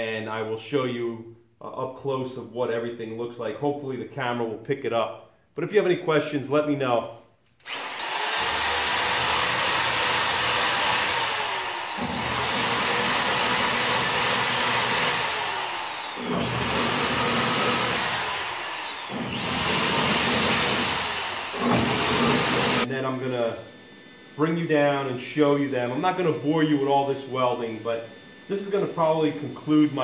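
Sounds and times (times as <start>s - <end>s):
power drill whining: 7.6s - 22.9s, 25.4s - 30.0s.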